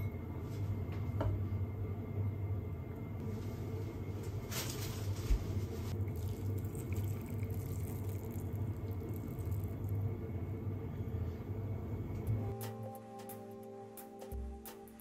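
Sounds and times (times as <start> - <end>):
steady low hum: 0.0 - 15.0
sauce trickling and dripping: 5.9 - 10.1.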